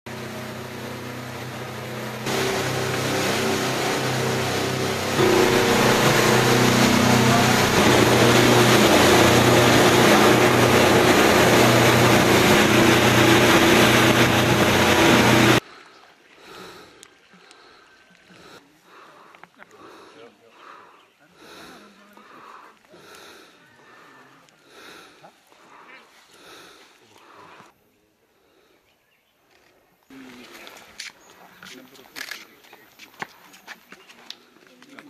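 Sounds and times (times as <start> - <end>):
outboard motor drone: 0.0 - 16.8.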